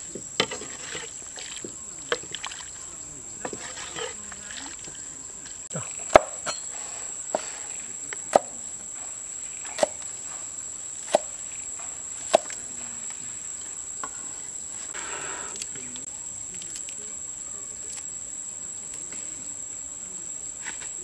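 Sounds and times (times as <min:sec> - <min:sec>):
high insect drone: 0:00.0 - 0:21.0
cleaver chopping on wooden board: 0:06.0 - 0:06.7, 0:08.2 - 0:08.6, 0:09.7 - 0:10.1, 0:11.0 - 0:11.4, 0:12.2 - 0:12.6.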